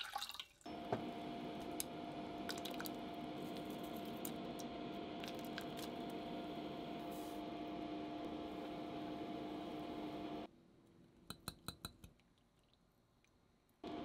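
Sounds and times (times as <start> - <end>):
kitchen appliance humming: 0.7 - 10.5.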